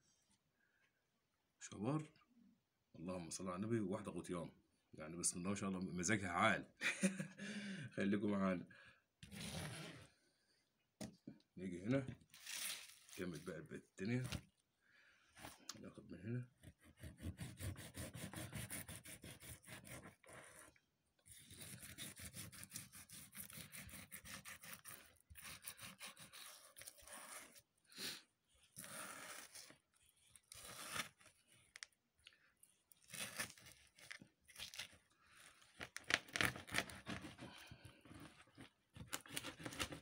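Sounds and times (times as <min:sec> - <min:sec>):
knife slicing fish: 0:21.3 - 0:27.7, 0:33.0 - 0:34.9.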